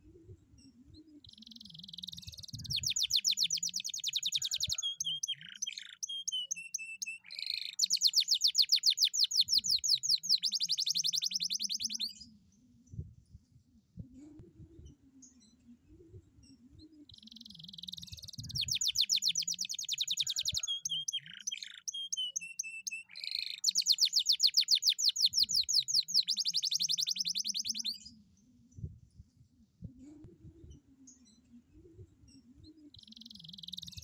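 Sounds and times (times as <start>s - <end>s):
canary singing trills: 1.1s - 12.2s, 17.0s - 28.2s, 32.3s - 34.0s.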